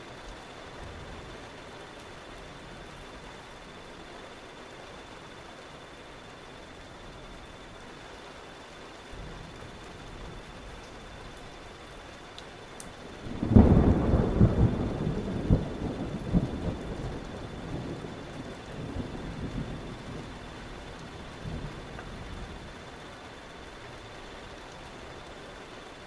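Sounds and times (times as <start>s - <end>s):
steady rain: 0.0s - 26.0s
thunder clap and rolling rumble: 13.1s - 23.1s.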